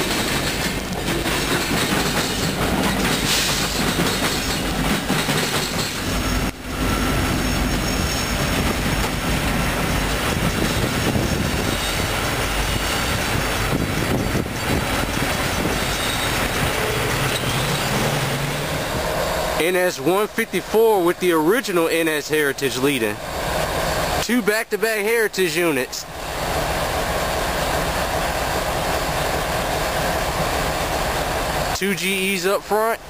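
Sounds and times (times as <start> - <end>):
train wheels clattering over rails: 0.0 - 6.6, 7.5 - 19.5
locomotive passing: 0.0 - 33.0
wheel squeal: 5.4 - 8.6, 10.6 - 13.4, 14.4 - 18.6.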